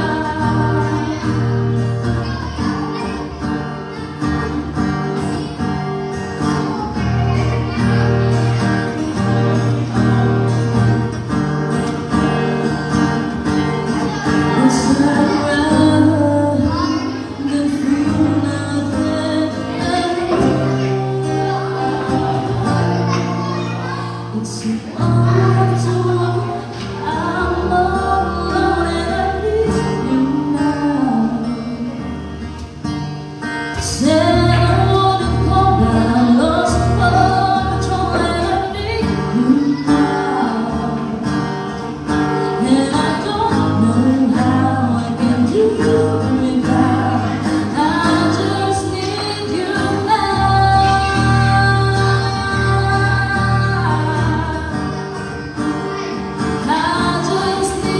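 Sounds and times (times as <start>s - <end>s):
woman singing a ballad: 0.0s - 2.9s, 13.4s - 23.6s, 24.2s - 32.5s, 33.7s - 55.6s, 56.4s - 57.9s
strummed acoustic guitar: 0.0s - 57.9s.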